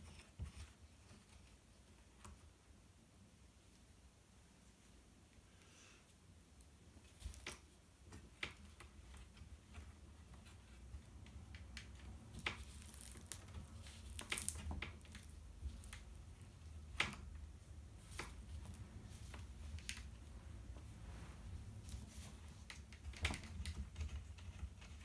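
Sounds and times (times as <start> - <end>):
fabric rustling: 17.6 - 22.9.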